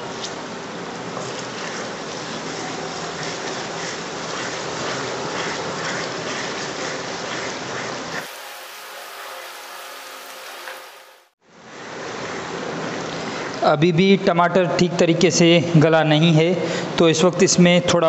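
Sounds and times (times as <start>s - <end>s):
spatula stirring: 1.2s - 11.1s
sauce sizzling in pot: 8.2s - 11.4s.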